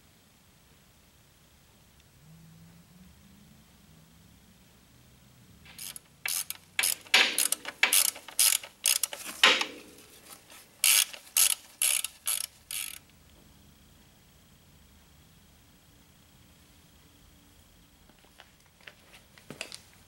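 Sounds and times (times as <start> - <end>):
ratchet wrench clicking: 5.7 - 10.0, 10.8 - 13.0.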